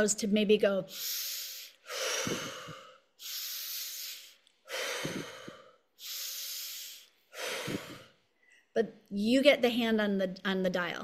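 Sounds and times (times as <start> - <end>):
woman breathing quickly: 0.9 - 8.6.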